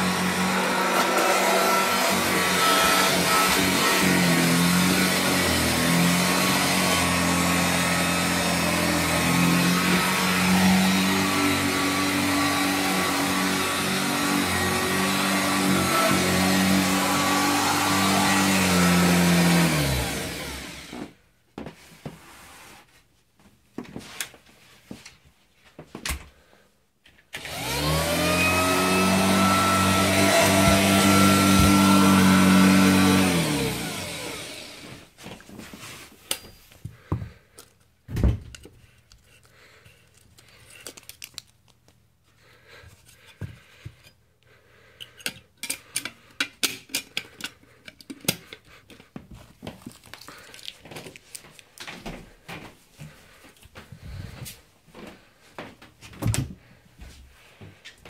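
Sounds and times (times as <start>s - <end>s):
vacuum cleaner motor whining: 0.0s - 21.2s, 27.3s - 35.2s.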